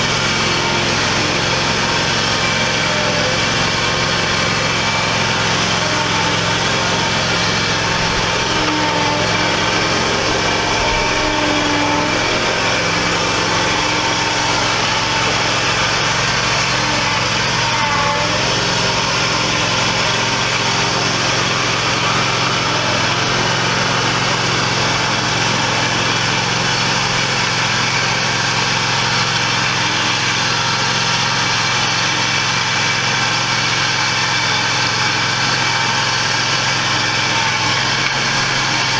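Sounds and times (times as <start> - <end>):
mower engine running: 0.0 - 38.9.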